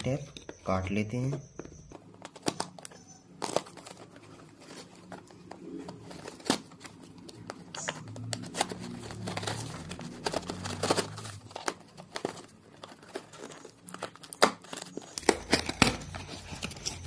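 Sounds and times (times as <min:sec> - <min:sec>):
knife cutting packing tape: 0:07.8 - 0:17.0
cardboard flaps being torn open: 0:08.2 - 0:17.0.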